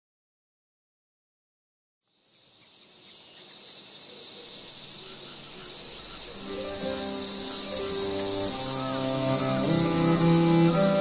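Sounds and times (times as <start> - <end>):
insects chirring: 2.0 - 11.0
music with low held tones: 6.4 - 11.0.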